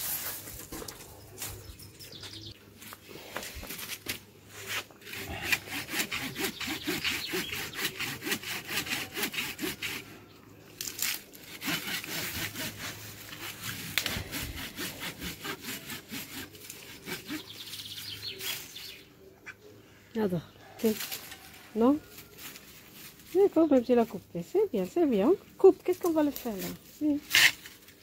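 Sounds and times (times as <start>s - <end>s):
pruning saw rasping: 5.0s - 10.2s, 11.4s - 18.6s.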